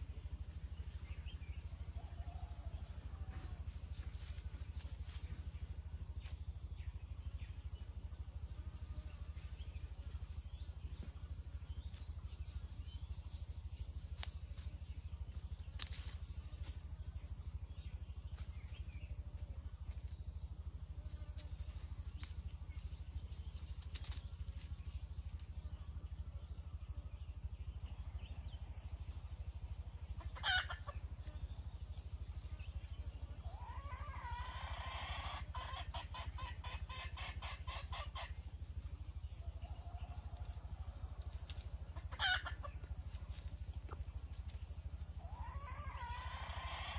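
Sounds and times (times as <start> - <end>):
low outdoor rumble: 0.0 - 46.9
junglefowl calling: 30.3 - 31.0, 33.4 - 38.4, 42.0 - 42.8, 45.2 - 46.9.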